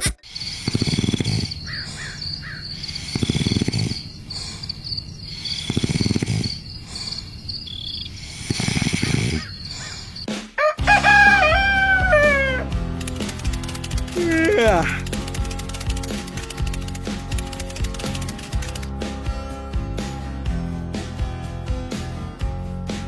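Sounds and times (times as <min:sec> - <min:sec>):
person snoring: 0:00.2 - 0:10.2, 0:14.1 - 0:15.1
crickets chirping: 0:00.2 - 0:10.3, 0:12.9 - 0:18.9
rooster crowing: 0:10.6 - 0:12.6.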